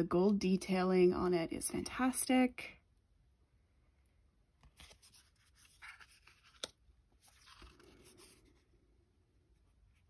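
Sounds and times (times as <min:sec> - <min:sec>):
cards rustling and sliding: 0:04.6 - 0:08.7.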